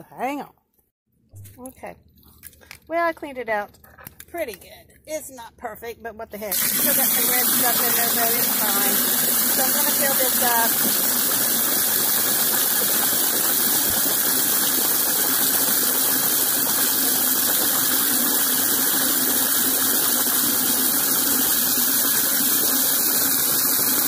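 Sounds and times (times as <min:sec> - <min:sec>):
water running into plastic container: 0:06.5 - 0:24.0.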